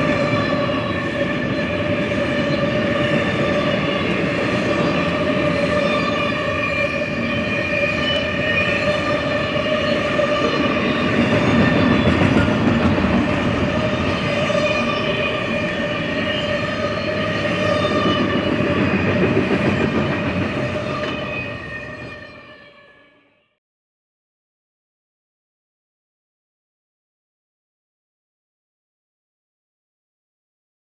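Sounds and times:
steel wheels rumbling on rail: 0:00.0 - 0:22.8.

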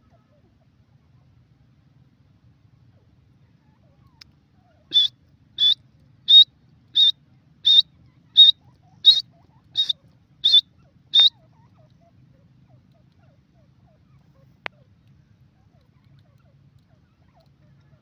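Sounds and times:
francolin whistled calls: 0:04.9 - 0:11.4.

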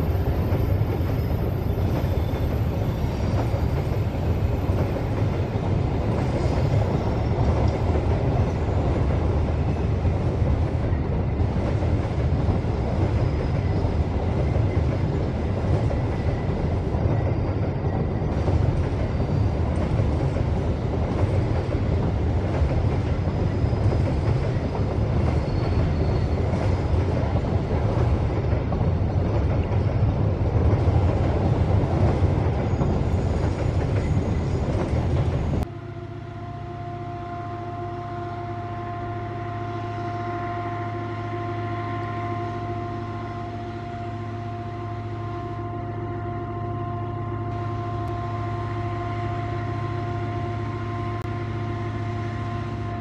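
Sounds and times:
clickety-clack of wheels: 0:00.0 - 0:35.7
train wheels rumbling on rail: 0:00.0 - 0:53.0.

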